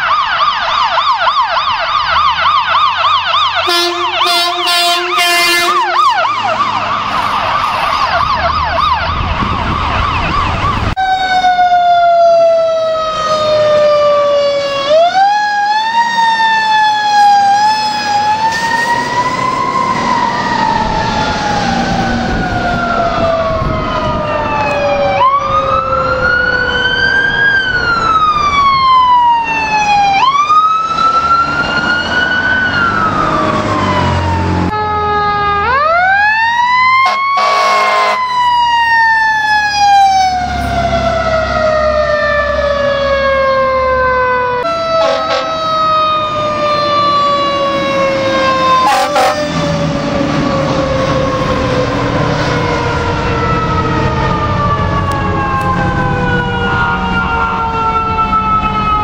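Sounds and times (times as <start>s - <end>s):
second siren: 0.0s - 59.0s
siren wailing: 0.0s - 59.0s
siren yelping: 0.0s - 59.0s
engine noise: 2.3s - 59.0s.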